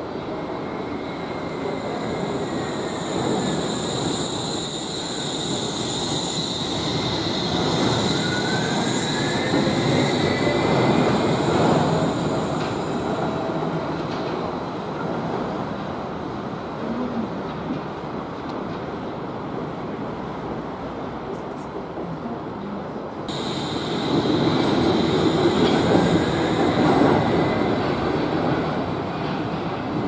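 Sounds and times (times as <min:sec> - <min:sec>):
monorail wheels rumbling on rail: 0:00.0 - 0:30.0
high-pitched wheel squeal: 0:01.2 - 0:11.3.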